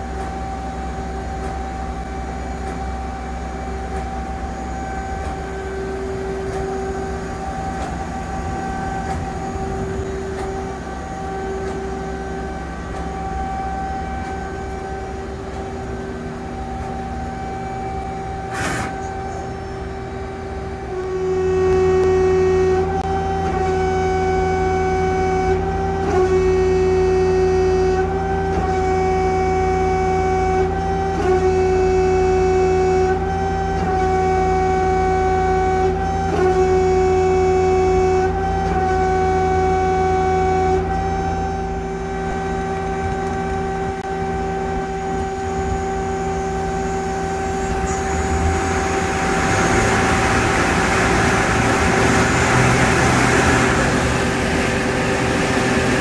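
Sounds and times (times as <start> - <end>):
lathe humming drone: 0.0 - 56.0.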